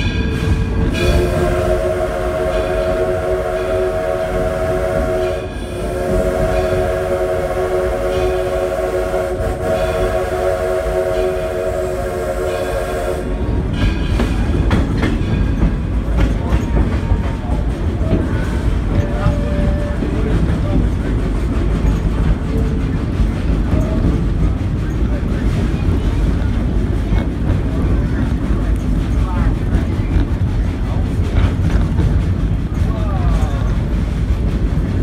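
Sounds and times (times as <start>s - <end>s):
train wheels clattering over rails: 0.0s - 35.0s
steam locomotive whistle: 0.9s - 13.5s.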